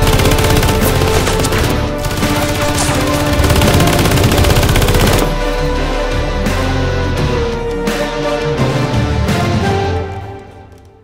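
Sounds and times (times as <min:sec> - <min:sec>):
background music: 0:00.0 - 0:11.0.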